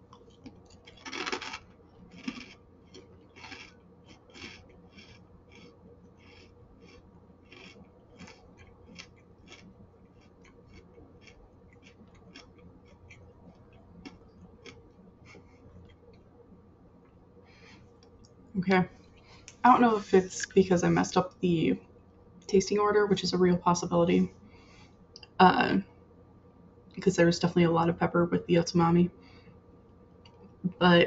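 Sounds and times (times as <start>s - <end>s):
chewing crunchy crackers: 0.0s - 16.2s.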